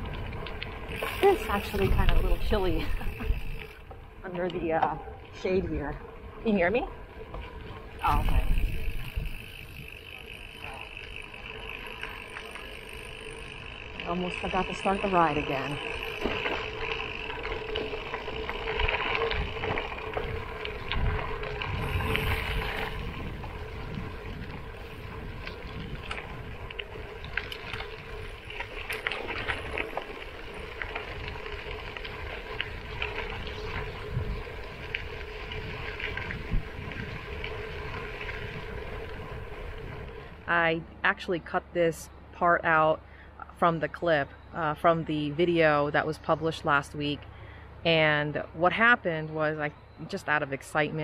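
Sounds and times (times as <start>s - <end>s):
wind rumble on microphone: 0.0s - 3.8s, 5.3s - 10.0s, 17.5s - 40.6s
tyres crunching on gravel: 0.0s - 4.8s, 6.0s - 40.5s.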